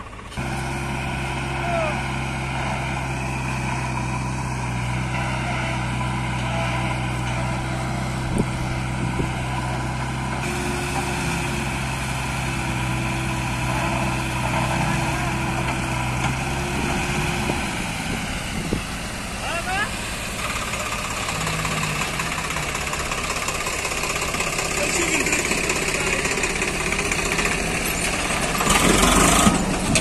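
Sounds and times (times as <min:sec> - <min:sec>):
diesel engines running: 0:00.0 - 0:30.0.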